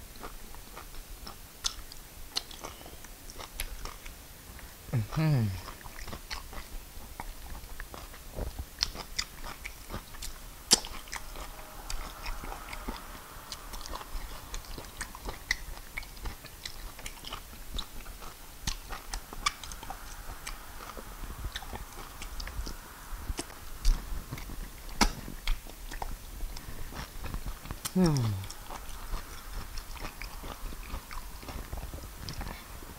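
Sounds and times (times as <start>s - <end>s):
person chewing with smacks: 0.1s - 32.9s.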